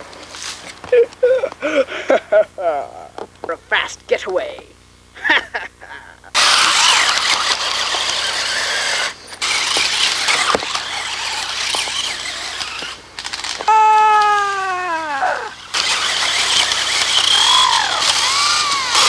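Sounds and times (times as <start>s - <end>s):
toy car motor whirring: 6.4s - 19.0s
loud whine sliding down in pitch: 13.7s - 19.0s.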